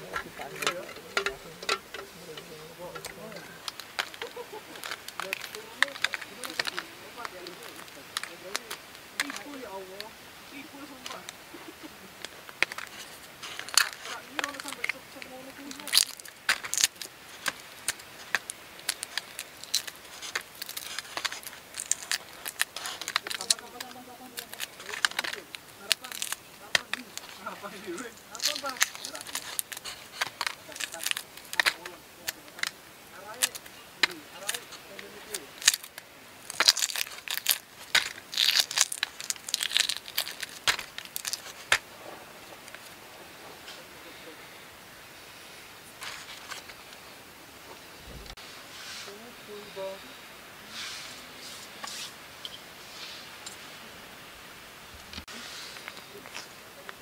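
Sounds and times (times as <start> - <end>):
eggshell cracking: 0.0 - 9.6, 12.1 - 41.9
plastic bag crinkling: 0.0 - 43.0.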